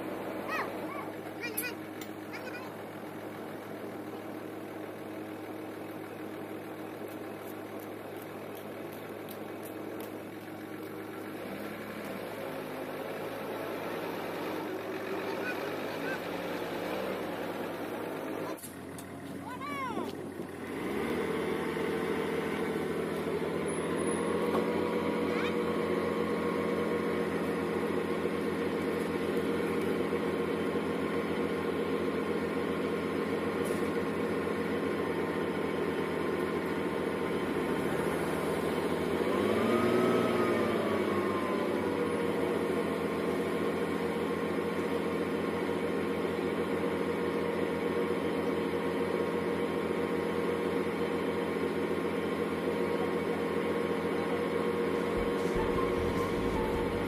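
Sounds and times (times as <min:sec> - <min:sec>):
engine drone: 0:00.0 - 0:57.0
tone sliding in pitch: 0:55.2 - 0:57.0.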